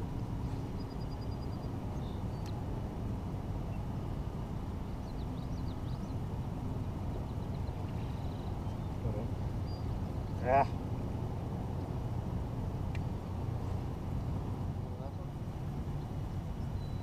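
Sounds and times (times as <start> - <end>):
low outdoor rumble: 0.0 - 17.0
faint bird chirps: 0.6 - 2.6, 5.0 - 6.2, 7.2 - 10.5, 16.0 - 17.0.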